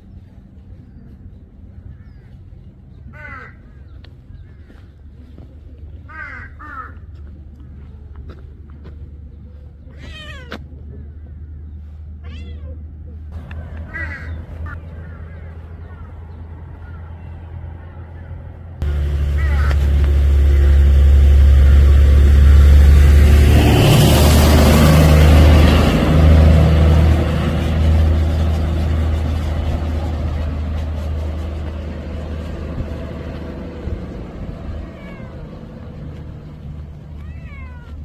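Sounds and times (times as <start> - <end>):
road train engine rumble: 0.0 - 38.0
cat meowing: 9.9 - 10.6, 12.2 - 12.8, 34.7 - 35.6, 37.2 - 38.0.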